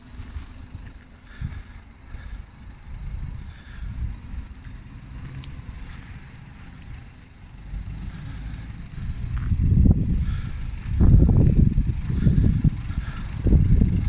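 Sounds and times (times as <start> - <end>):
wind buffeting microphone: 0.6 - 14.0.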